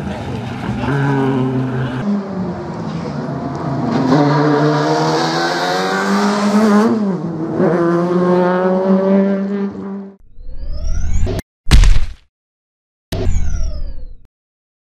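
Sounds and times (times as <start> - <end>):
rally car engine at high revs: 0.7 - 10.2.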